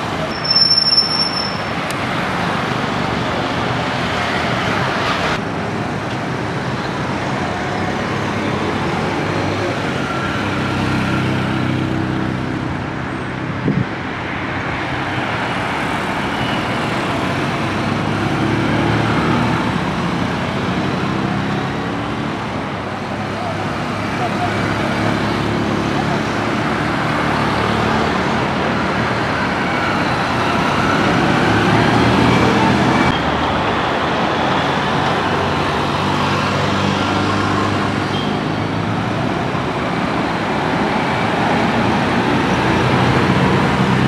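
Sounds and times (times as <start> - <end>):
road traffic: 0.0 - 44.0
high-pitched squeal: 0.2 - 1.8.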